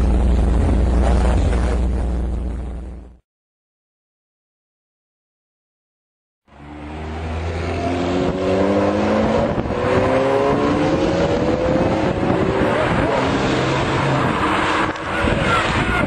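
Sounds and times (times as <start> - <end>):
sports car engine accelerating: 6.5 - 16.0.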